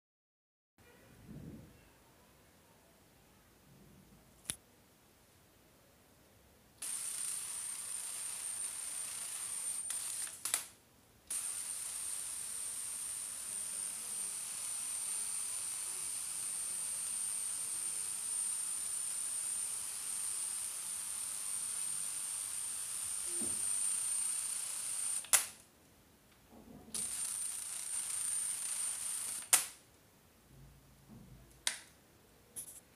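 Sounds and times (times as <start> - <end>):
high-voltage corona discharge hiss: 6.8 - 10.5, 11.3 - 25.5
spark crack: 9.4 - 19.6, 21.8 - 25.6, 27.0 - 29.8
sharp electrical snap: 9.8 - 11.7, 25.0 - 25.7, 29.2 - 29.8
single click: 10.3 - 10.7, 25.2 - 25.6
high-pitched electrical whine: 11.3 - 25.3.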